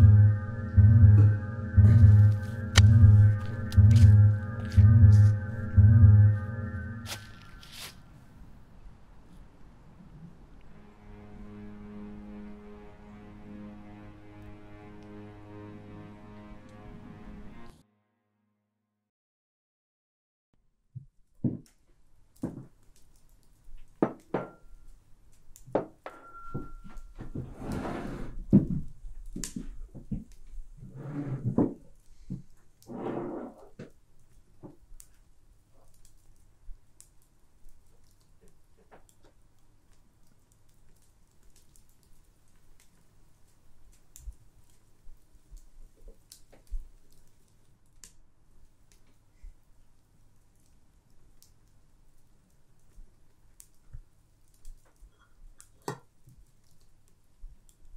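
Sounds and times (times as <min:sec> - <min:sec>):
soft low thumps: 0:00.0 - 0:06.4.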